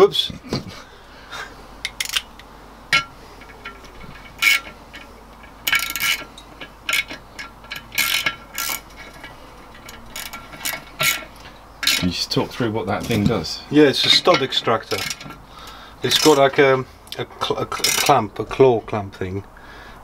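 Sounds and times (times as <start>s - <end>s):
metallic tool clicks: 1.8s - 12.0s.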